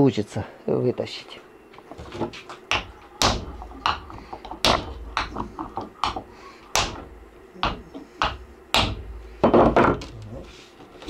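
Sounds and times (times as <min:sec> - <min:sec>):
hammer striking metal: 0:06.0 - 0:09.9.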